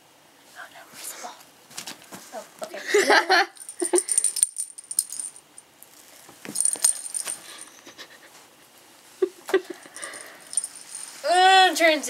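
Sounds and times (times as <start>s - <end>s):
toy bell jingling: 3.6s - 5.6s, 6.5s - 7.8s, 9.8s - 11.3s.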